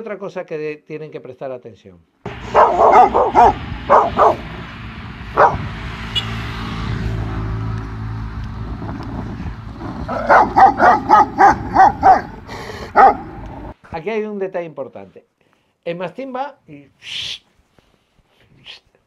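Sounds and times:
dogs barking: 2.3 - 5.8, 9.8 - 13.7.

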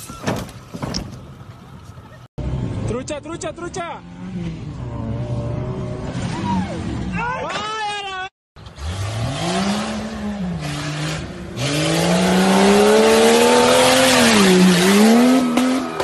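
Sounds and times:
truck engine revving: 8.6 - 16.0.

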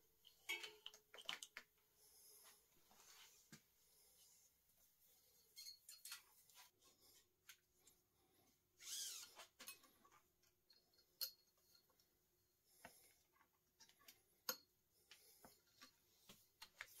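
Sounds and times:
faint clicks and taps of cable: 0.2 - 1.7.

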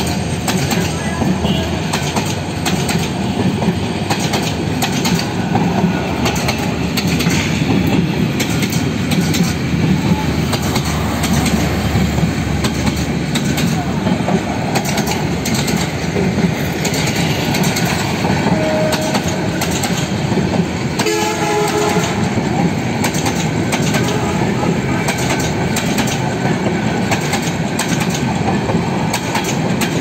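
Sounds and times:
train coaches rumbling past: 0.0 - 30.0
wheels clacking over rail joints: 0.0 - 30.0
train horn blast: 18.3 - 19.7, 21.0 - 22.4, 24.0 - 25.4.

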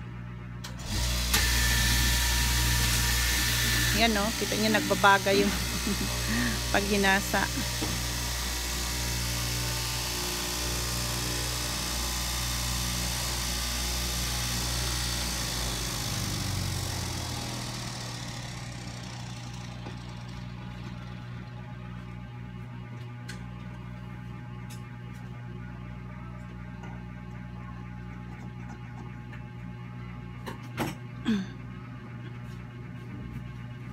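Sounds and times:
cloth cutting machine motor hum: 0.6 - 24.8.

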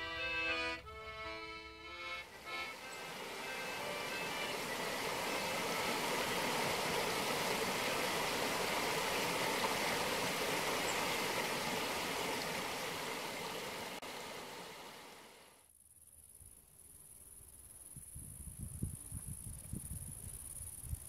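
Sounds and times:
river rushing over rocks: 2.2 - 15.4.

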